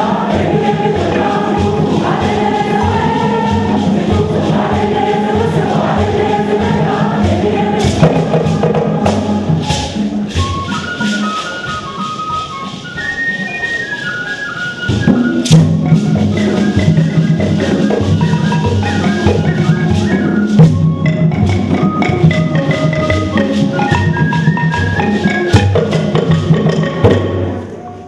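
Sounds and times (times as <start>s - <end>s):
pulsing drum beat: 0.0s - 11.0s, 15.0s - 27.6s
wooden xylophone notes: 0.0s - 28.0s
end-blown flute: 8.6s - 21.6s.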